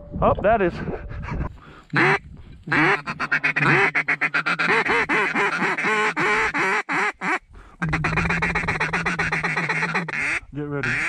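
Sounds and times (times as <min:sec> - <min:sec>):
steady low drone: 0:00.0 - 0:02.7
duck call quacking: 0:01.9 - 0:11.0.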